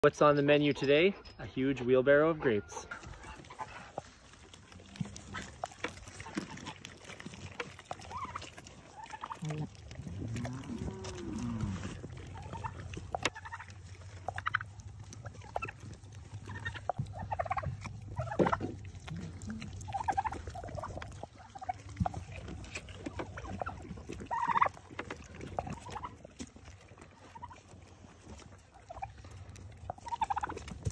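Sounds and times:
goats crunching grapes: 1.6s - 30.9s
poultry calls: 7.6s - 9.6s, 10.3s - 18.6s, 23.1s - 24.8s, 28.7s - 29.2s.

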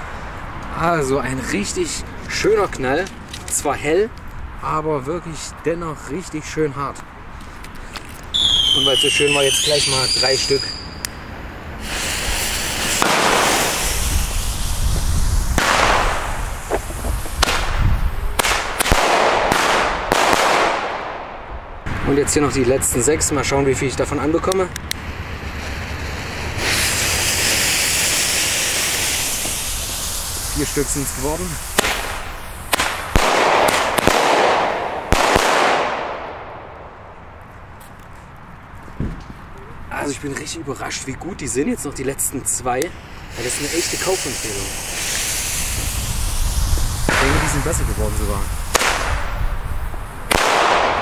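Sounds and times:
steady hiss: 7.4s - 20.1s, 20.7s - 38.0s, 39.7s - 51.0s
fireworks shells bursting: 11.8s - 21.4s, 24.8s - 37.0s, 42.8s - 51.0s
sharp loud bangs: 12.9s - 13.8s, 15.6s - 16.8s, 17.4s - 22.2s, 31.8s - 37.0s, 48.7s - 49.4s, 50.3s - 51.0s.

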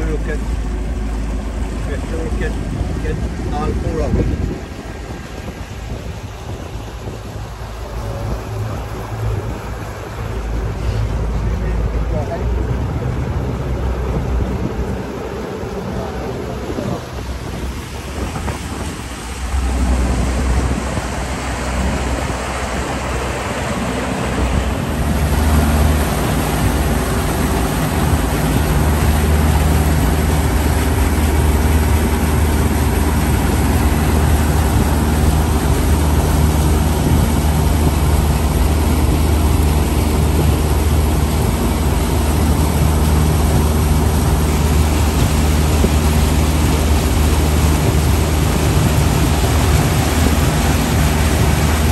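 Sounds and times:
boat motor droning: 0.0s - 51.9s
rushing wind and water: 0.0s - 51.9s.

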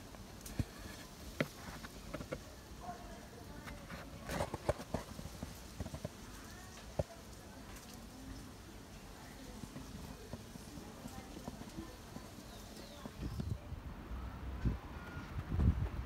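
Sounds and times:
faint voices: 0.0s - 15.8s.

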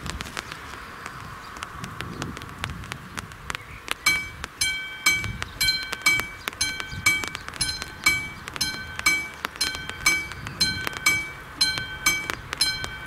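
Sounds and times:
level crossing bell ringing: 4.1s - 13.0s.

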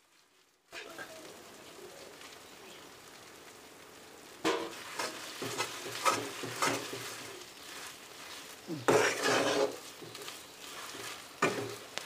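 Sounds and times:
ghee sizzling in a hot pan: 0.0s - 12.0s
steel spatula scraping a pan: 4.5s - 11.9s.

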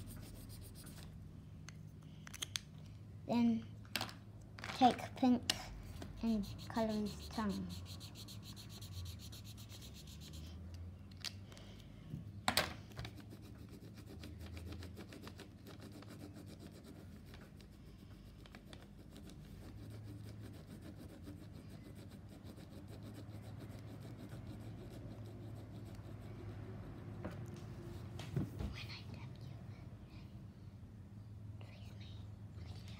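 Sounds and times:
marker scratching on paper: 0.0s - 1.2s, 5.8s - 10.6s, 13.1s - 28.4s.

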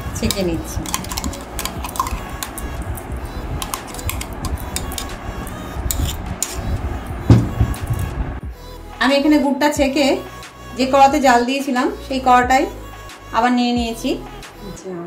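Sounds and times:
spoon scraping metal strainer: 0.0s - 6.8s.

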